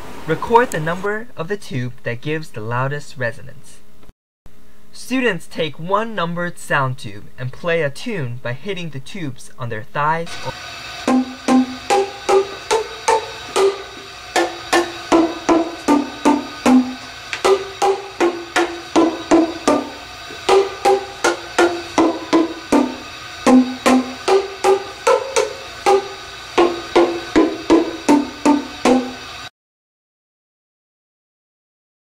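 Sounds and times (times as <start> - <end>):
tuned sound tubes struck: 11.0 - 29.2.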